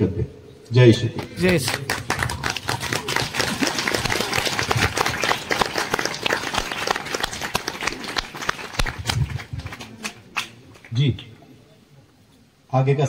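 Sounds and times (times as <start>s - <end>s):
crowd applauding: 1.2s - 11.0s.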